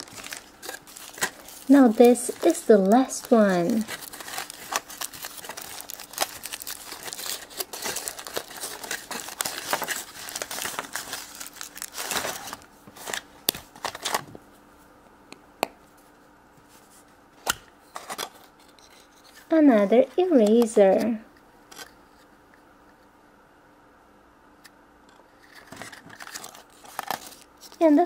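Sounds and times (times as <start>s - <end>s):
foil wrapper crinkling and tearing: 0.0s - 14.3s, 25.5s - 28.0s.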